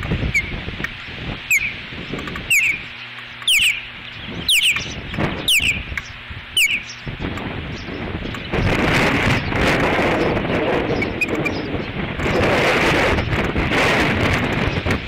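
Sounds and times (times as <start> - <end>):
wind buffeting microphone: 0.0 - 15.0
osprey alert calls: 0.3 - 8.7, 10.8 - 12.0.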